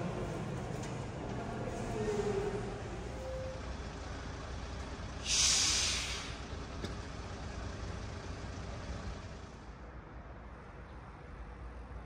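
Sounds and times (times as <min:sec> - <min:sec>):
vehicle engines idling: 0:00.0 - 0:09.9
loud hiss: 0:05.2 - 0:06.4.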